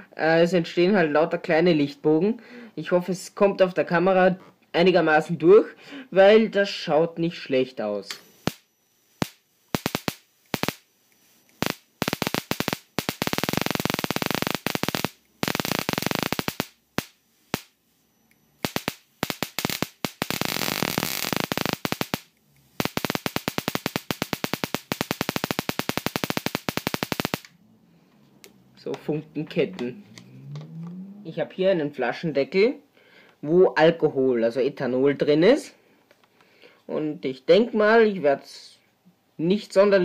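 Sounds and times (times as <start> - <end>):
electric arcs crackling: 8.1 - 17.8, 18.6 - 27.6.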